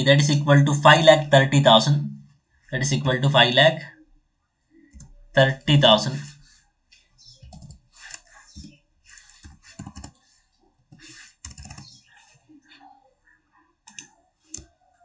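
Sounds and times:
computer keyboard typing: 7.3s - 10.2s, 10.9s - 12.1s, 13.8s - 14.8s.

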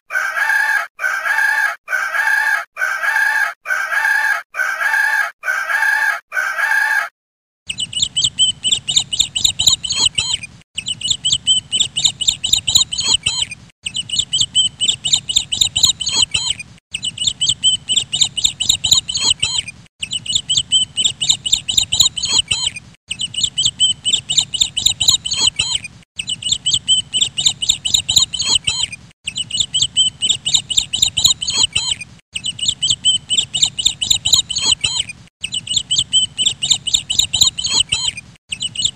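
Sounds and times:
rooster crowing: 0.1s - 7.1s
chicks peeping: 7.7s - 38.9s.

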